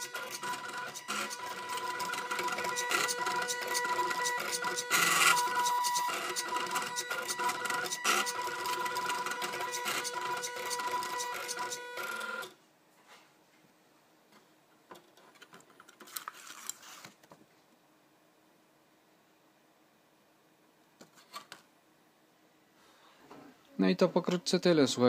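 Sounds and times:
stepper motors whining and ticking: 0.0s - 12.5s.

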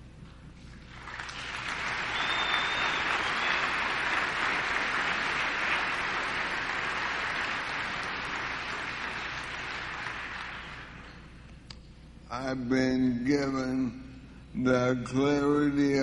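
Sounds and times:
audience applauding: 0.8s - 11.2s.

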